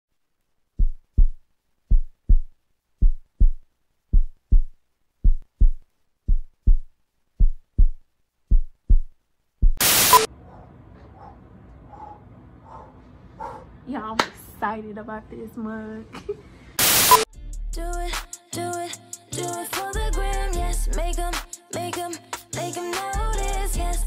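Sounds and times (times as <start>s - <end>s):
heartbeat thumps: 0.8s - 9.9s
static hiss burst: 9.8s - 10.3s, 16.8s - 17.3s.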